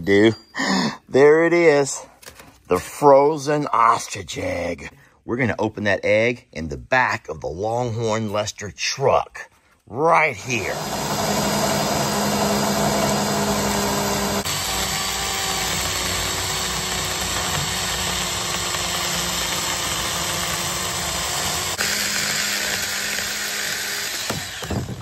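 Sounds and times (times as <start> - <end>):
circular saw cutting eggshell: 10.4 - 25.0.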